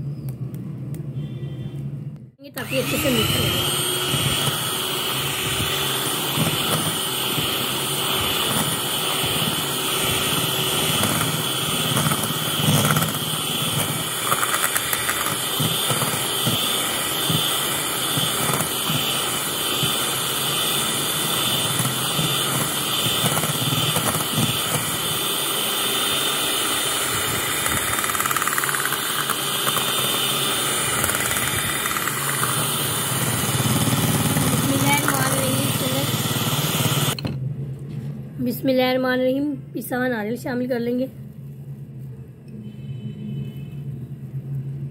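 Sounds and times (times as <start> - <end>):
electric hand mixer whipping cream: 2.6 - 37.2.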